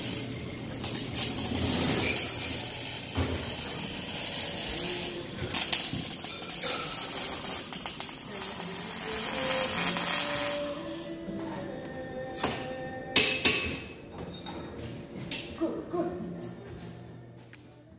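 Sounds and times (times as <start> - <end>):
welding arc crackling and hissing: 0.0 - 11.1.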